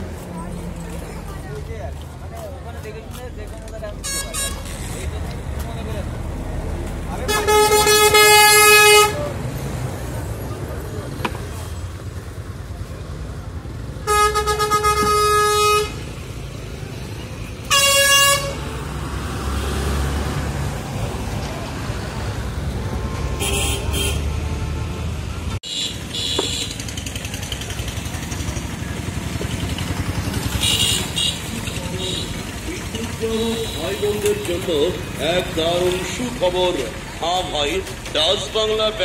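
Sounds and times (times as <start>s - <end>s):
street din: 0.0s - 39.0s
vehicle horn honking: 4.0s - 4.7s, 7.3s - 9.3s, 14.0s - 16.0s, 17.7s - 18.6s, 23.4s - 24.4s, 25.7s - 26.8s, 30.6s - 32.4s.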